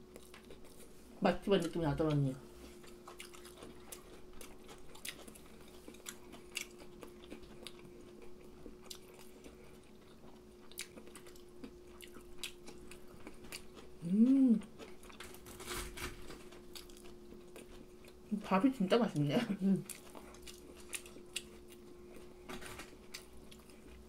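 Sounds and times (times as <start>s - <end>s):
chewing and crunching: 0.0s - 24.0s
faint hum: 0.0s - 24.0s
person humming mm: 14.0s - 14.7s.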